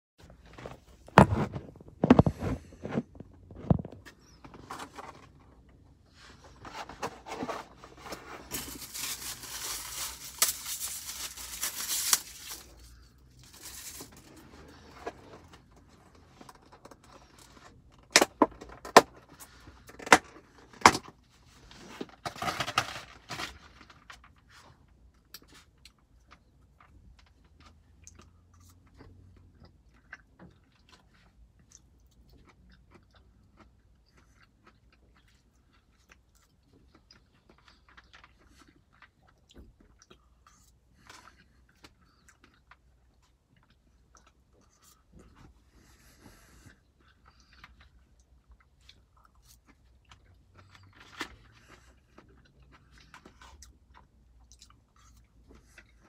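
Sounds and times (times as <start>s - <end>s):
plastic crinkling rustle: 6.6s - 14.9s.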